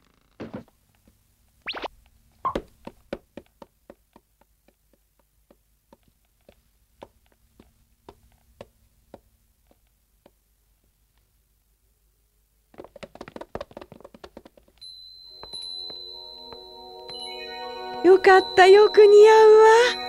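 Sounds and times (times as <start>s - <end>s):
footsteps on wooden floorboards: 2.5s - 10.4s, 12.7s - 14.8s.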